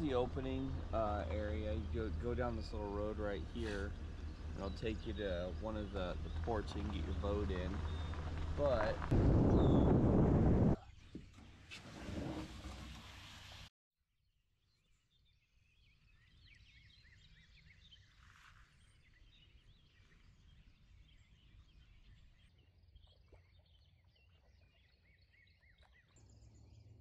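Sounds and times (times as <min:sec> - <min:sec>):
small songbirds chirping: 0:00.0 - 0:10.0, 0:14.7 - 0:27.0
low steady outdoor rumble: 0:00.0 - 0:11.6
short brushing noise: 0:03.5 - 0:03.9.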